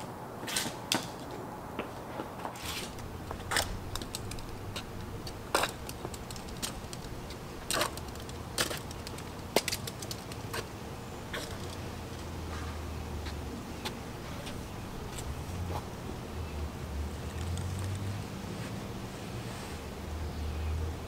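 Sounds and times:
sneakers stepping on concrete: 0.0 - 15.9.

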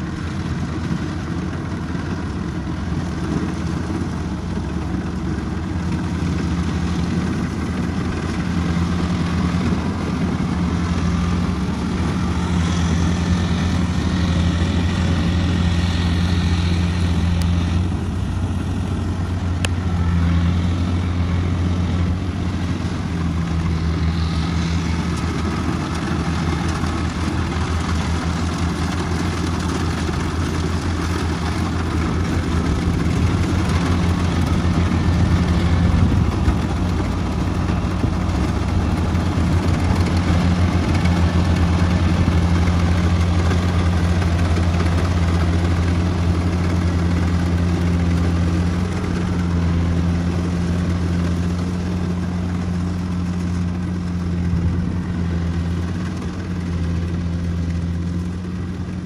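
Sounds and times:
diesel engine humming: 0.0 - 59.0
machinery noise: 0.0 - 59.0.

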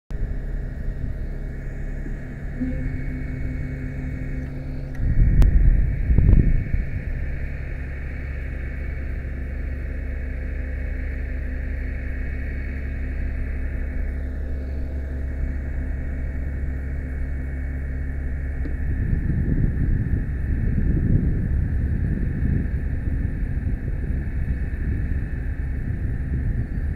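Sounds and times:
hydraulic drone with high whine: 0.1 - 26.9
low rumble with sharp click: 0.1 - 26.9.

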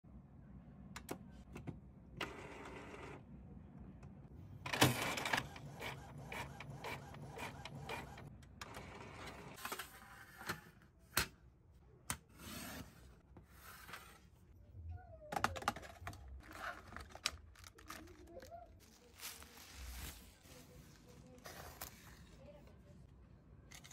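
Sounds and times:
printer humming: 4.6 - 9.6
plastic packaging rustling: 16.3 - 22.4.

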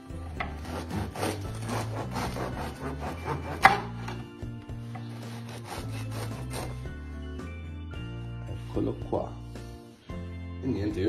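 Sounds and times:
knife sawing through bread: 0.4 - 4.2, 5.0 - 7.0.

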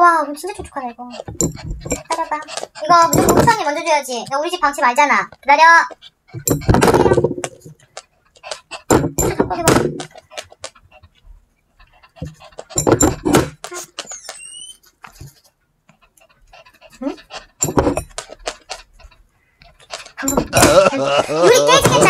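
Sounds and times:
dog whining: 11.8 - 15.4, 16.0 - 22.0.

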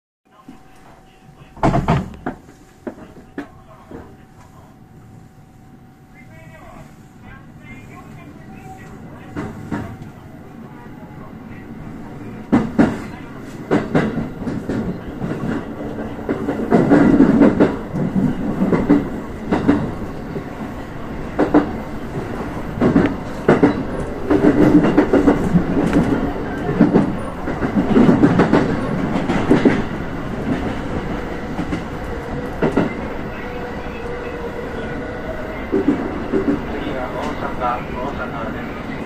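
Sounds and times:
train running noise: 0.3 - 39.0
train wheels clattering on track: 1.6 - 4.5, 8.9 - 10.2, 12.4 - 34.9, 35.5 - 39.0.

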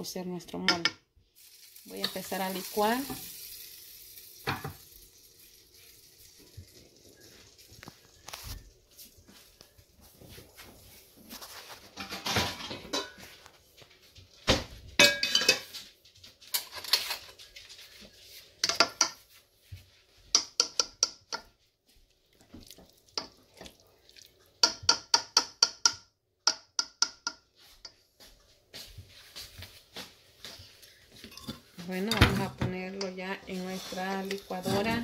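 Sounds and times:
spoon scraping in cooking pot: 30.8 - 35.0.

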